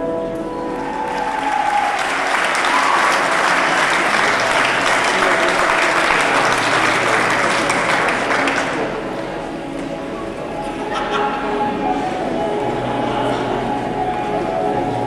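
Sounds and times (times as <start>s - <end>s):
music: 0.0s - 15.0s
audience applauding: 0.4s - 9.8s.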